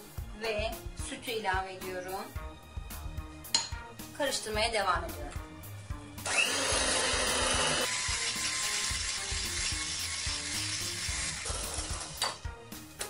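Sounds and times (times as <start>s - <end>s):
electric hand mixer whisking batter: 6.2s - 12.3s.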